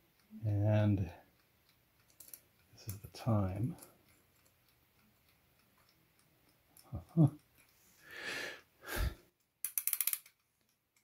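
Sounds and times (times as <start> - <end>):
small handling sounds: 1.4 - 8.0.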